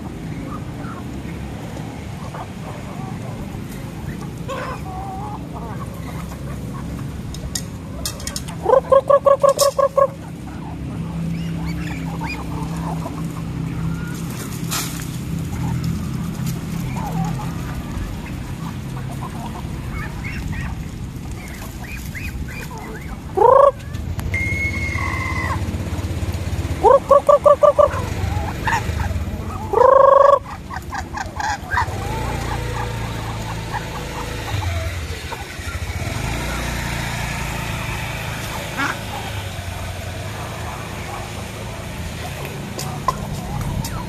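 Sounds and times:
ducks and chickens calling: 0.0 - 44.0
long loud rising bird call: 23.4 - 25.7.

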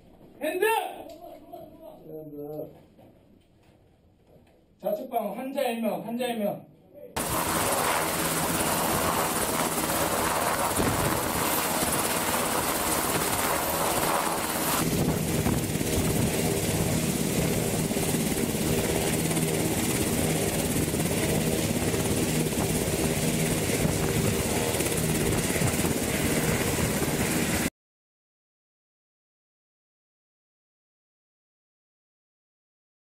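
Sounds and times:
helicopter hovering: 7.2 - 27.7.

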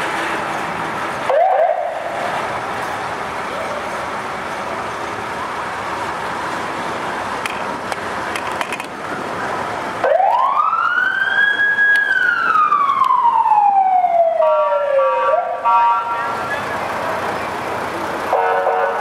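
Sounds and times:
street and crowd noise: 0.0 - 19.0
fire engine siren: 1.0 - 2.6, 9.8 - 19.0.

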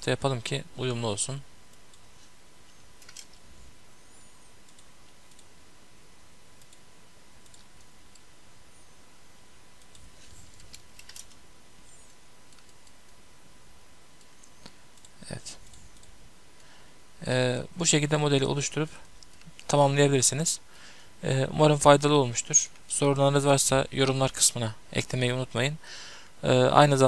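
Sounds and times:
microphone hiss: 0.0 - 27.0
mouse and keyboard clicks: 3.0 - 3.4, 9.8 - 11.4.

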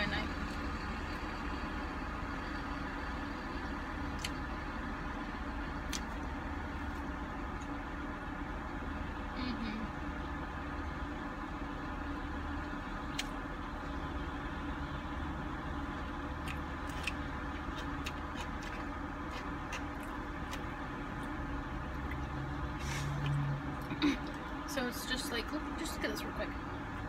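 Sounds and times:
car interior hum: 0.0 - 27.0
chewing: 16.4 - 22.4.

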